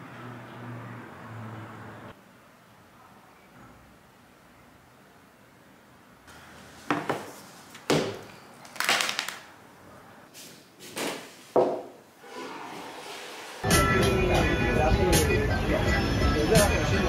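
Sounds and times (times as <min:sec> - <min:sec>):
objects knocking on table: 0:06.9 - 0:07.3, 0:11.6 - 0:12.0.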